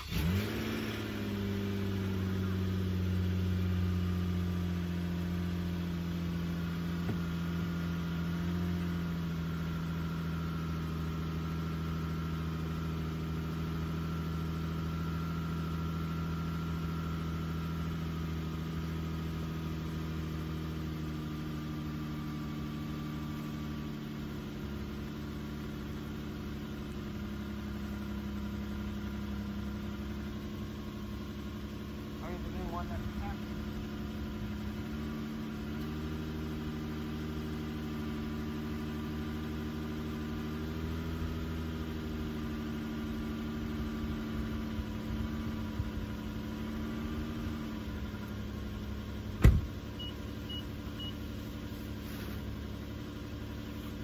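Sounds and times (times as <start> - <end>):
car engine starting and idling: 0.0 - 54.0.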